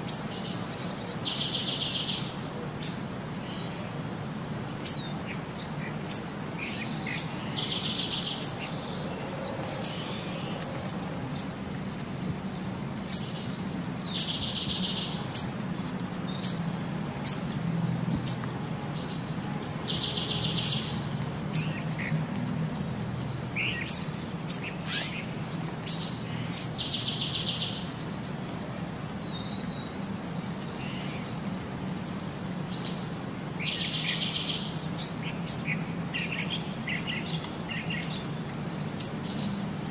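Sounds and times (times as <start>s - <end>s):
bird chirps and trill: 19.2s - 21.0s.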